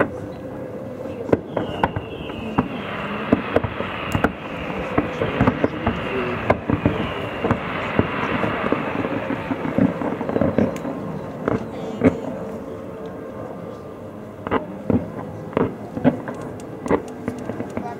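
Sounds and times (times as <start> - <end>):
firework fountains hissing: 0.9 - 13.0
fireworks bangs and crackles: 1.2 - 12.5, 14.4 - 17.9.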